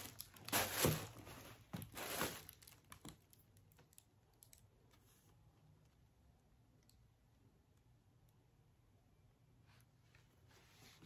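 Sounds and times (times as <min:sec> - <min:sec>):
packaging rustling and crinkling: 0:00.0 - 0:03.4.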